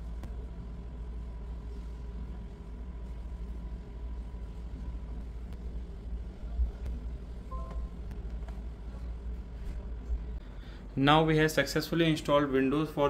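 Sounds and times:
faint high whine: 0:00.0 - 0:09.2
low background rumble: 0:00.0 - 0:13.0.

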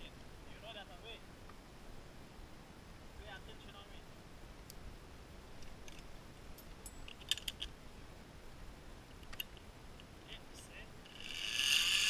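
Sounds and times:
metallic clicks and clinks: 0:05.9 - 0:07.7.

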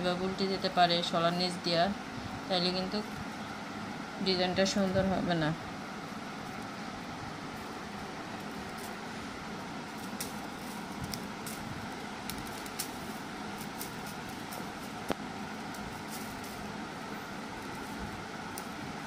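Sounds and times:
steady background hum: 0:00.0 - 0:19.0
broom sticks clicking: 0:09.9 - 0:16.7, 0:17.6 - 0:18.8.

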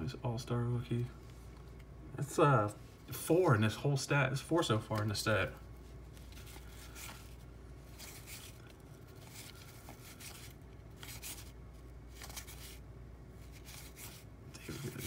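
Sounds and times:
cardboard cards sliding and rubbing: 0:06.0 - 0:12.8, 0:13.4 - 0:15.0.

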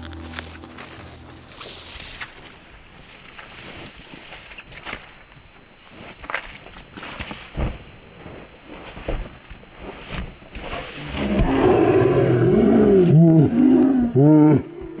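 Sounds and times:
footsteps in grass: 0:00.0 - 0:11.1
man making animal calls: 0:13.0 - 0:15.0.

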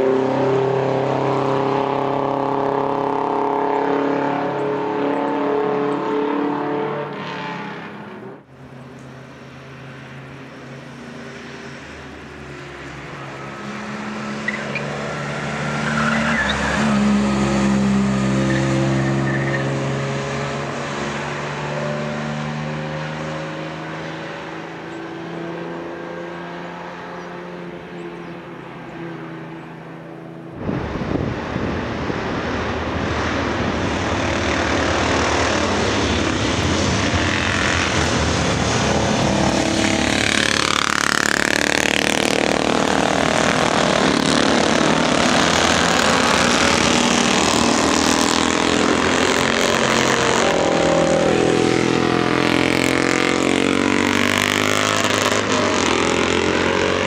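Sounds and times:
motorcycles riding past: 0:30.6 - 0:57.0.

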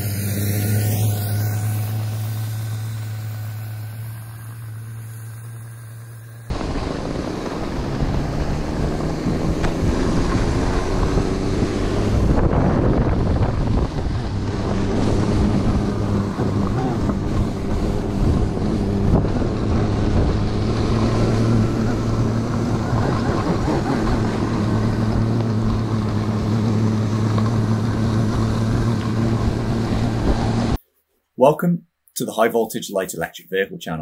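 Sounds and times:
electric motor humming: 0:00.0 - 0:30.8
wind rushing on microphone: 0:06.5 - 0:30.8.

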